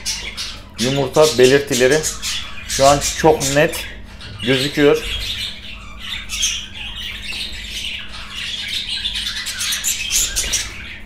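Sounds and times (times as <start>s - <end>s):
budgerigars chattering: 0.0s - 11.0s.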